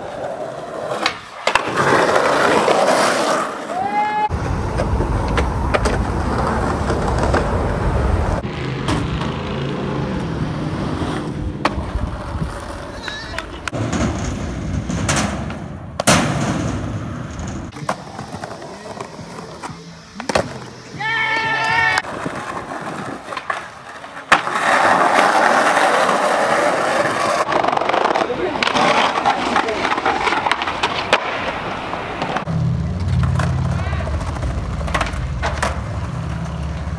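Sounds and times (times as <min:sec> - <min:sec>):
skateboard clacks: 0:00.0 - 0:03.9, 0:11.0 - 0:36.9
skateboard on sheet-metal roof: 0:00.0 - 0:19.0, 0:20.3 - 0:36.9
skateboard wheels rolling: 0:00.0 - 0:36.9
skateboard landing slap: 0:13.0 - 0:18.0, 0:24.3 - 0:25.2, 0:27.4 - 0:33.8.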